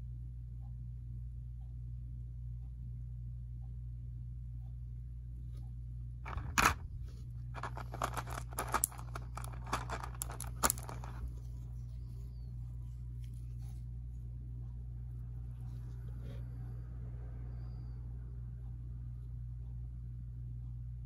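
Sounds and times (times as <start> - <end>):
plastic packaging crackling: 7.6 - 11.2.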